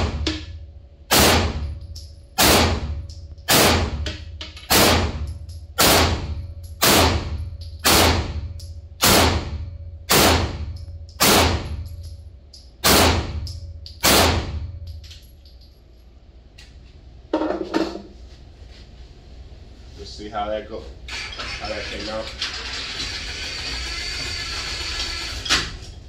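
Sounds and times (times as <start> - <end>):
pistol shots in indoor range: 0.0 - 15.8.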